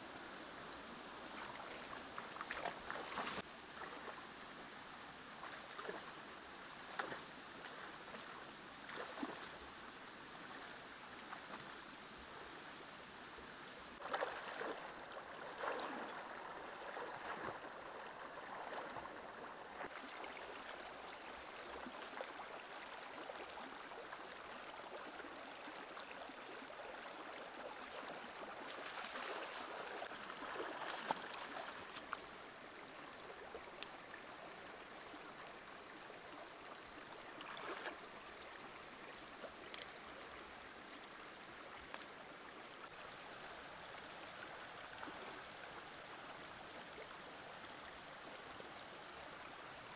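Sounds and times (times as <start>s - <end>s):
shallow stream running: 0.0s - 49.9s
feet splashing through water: 1.4s - 4.2s, 14.0s - 19.2s, 28.8s - 32.2s, 37.4s - 38.0s.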